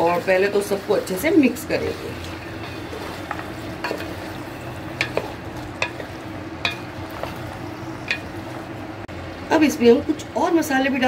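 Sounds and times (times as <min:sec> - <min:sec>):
wooden spatula stirring vegetables: 0:00.0 - 0:08.8
low sizzle: 0:00.0 - 0:11.0
spatula knocking pot: 0:01.9 - 0:08.5.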